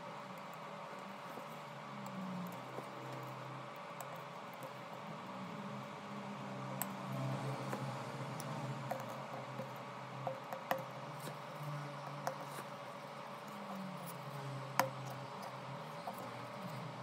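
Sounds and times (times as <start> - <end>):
low steady hum: 0.0 - 17.0
small tool clicks and taps: 6.8 - 11.4, 12.0 - 12.7, 13.5 - 16.8.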